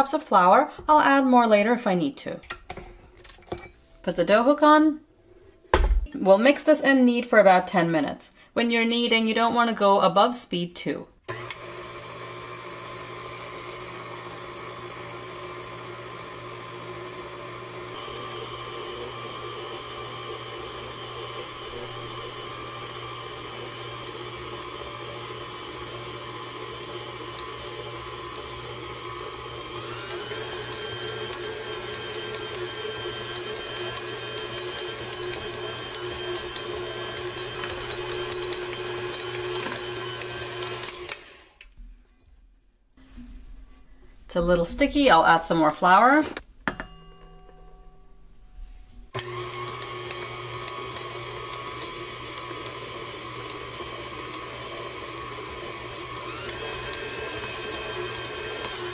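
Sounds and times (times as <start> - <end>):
stand mixer motor whine: 11.3 - 41.6, 49.2 - 58.9.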